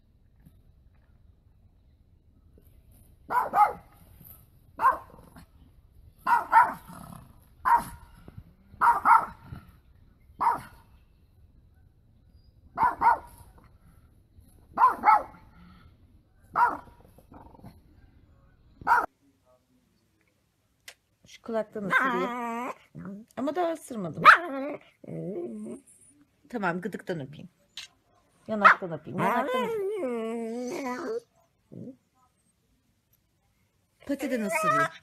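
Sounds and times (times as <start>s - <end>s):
dog barking: 3.3s - 4.0s, 4.8s - 5.4s, 6.2s - 7.0s, 7.6s - 8.1s, 8.8s - 9.5s, 10.4s - 10.8s, 12.8s - 13.6s, 14.7s - 15.5s, 16.5s - 17.0s, 18.8s - 19.1s, 24.2s - 24.5s, 28.6s - 29.3s.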